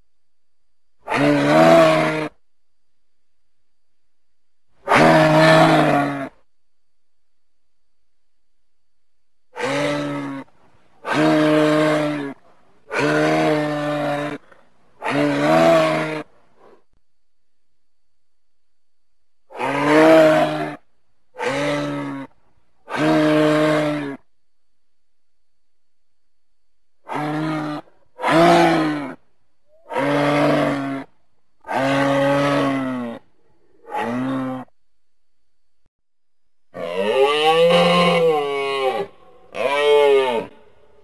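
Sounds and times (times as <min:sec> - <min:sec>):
moose calling: 0:09.6 - 0:16.8.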